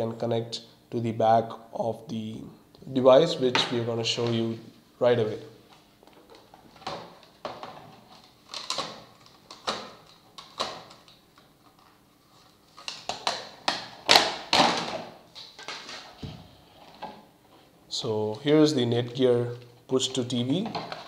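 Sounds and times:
plastic packaging crackling: 6.0 - 16.2.

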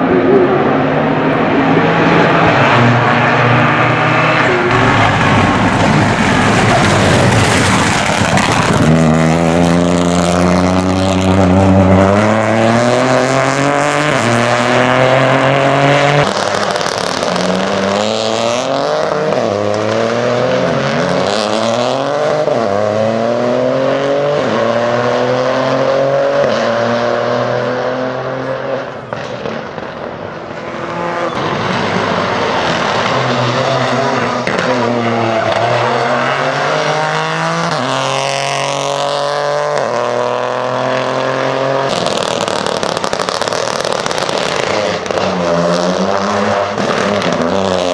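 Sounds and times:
dense rush of noise: 0.0 - 12.4, 31.4 - 37.2
car engine revving: 0.0 - 47.9.

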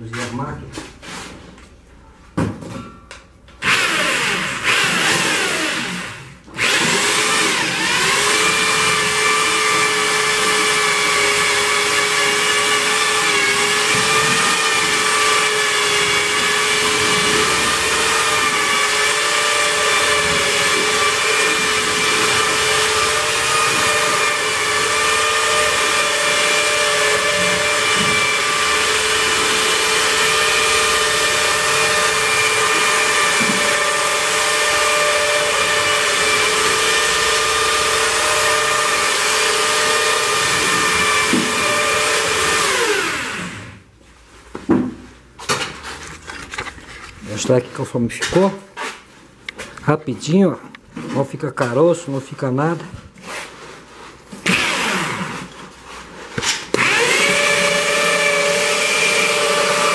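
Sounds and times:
electric drill mixing adhesive: 3.6 - 43.9, 54.2 - 59.9.

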